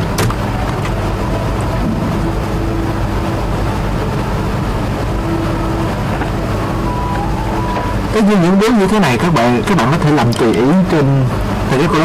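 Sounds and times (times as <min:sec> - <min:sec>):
low rumble and hum: 0:00.0 - 0:12.0
faint high tone: 0:06.6 - 0:08.3.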